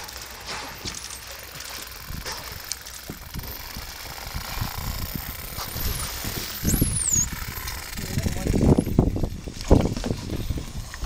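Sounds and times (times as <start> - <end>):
underwater crackle: 0.0 - 8.7
dolphin whistles: 6.6 - 7.4.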